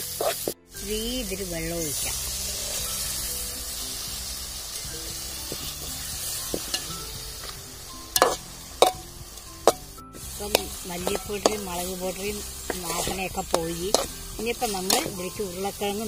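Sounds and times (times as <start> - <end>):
masala sizzling in hot oil: 0.0 - 16.0
spoon stirring in metal pot: 4.8 - 15.3.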